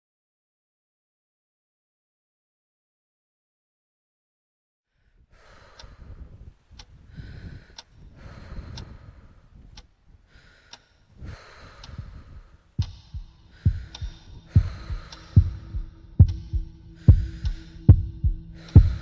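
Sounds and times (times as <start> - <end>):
soft breath-like swells: 5.0 - 9.6, 10.2 - 19.0
faint tick: 5.6 - 6.0, 7.7 - 7.9, 8.6 - 9.0, 10.7 - 10.9, 11.8 - 12.1, 15.1 - 15.6
steady low hum: 11.2 - 19.0
loud heartbeat thudding: 12.8 - 19.0.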